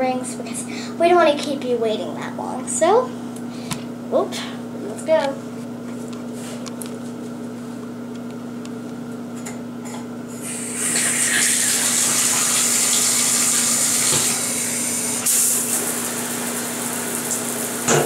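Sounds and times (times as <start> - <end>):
water running into a bathtub: 10.5 - 18.0.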